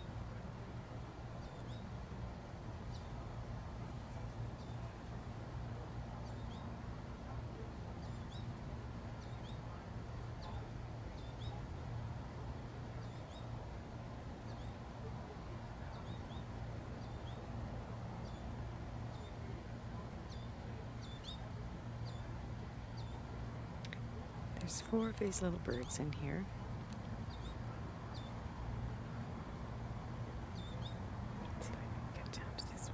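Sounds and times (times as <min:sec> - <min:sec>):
steady low hum: 0:00.0 - 0:32.9
finches chirping: 0:30.5 - 0:32.9.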